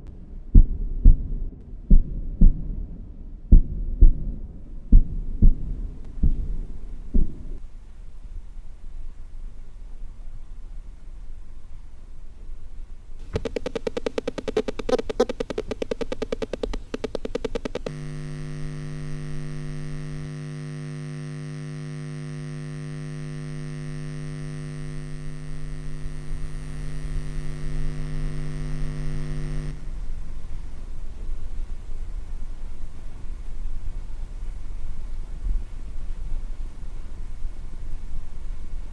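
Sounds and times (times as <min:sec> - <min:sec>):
low background rumble: 0:00.0 - 0:20.8
low electrical hum: 0:00.0 - 0:38.9
stuttering electric buzz: 0:13.2 - 0:30.6.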